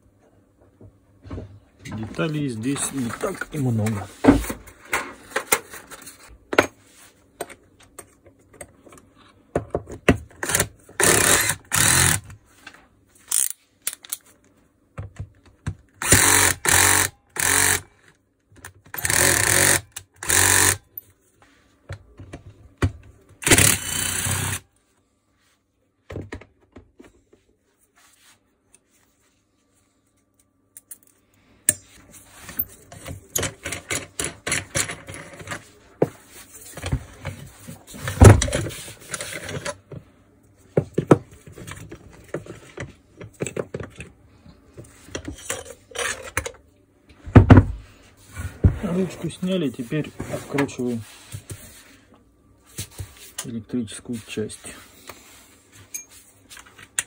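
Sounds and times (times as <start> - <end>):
cordless drill running: 10.4 - 12.2, 16.0 - 17.9, 19.0 - 20.8, 23.4 - 24.6
tools clicking and knocking: 30.4 - 35.6.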